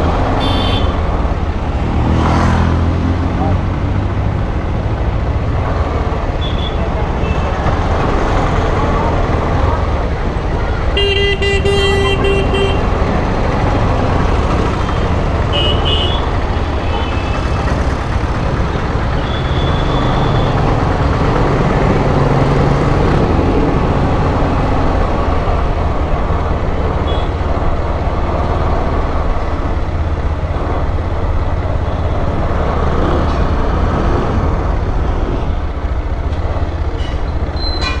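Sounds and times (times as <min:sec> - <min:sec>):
vehicle horn honking: 0:00.4 - 0:01.0, 0:11.0 - 0:12.9, 0:15.5 - 0:16.3
motorcycle engine and wind: 0:12.2 - 0:37.7.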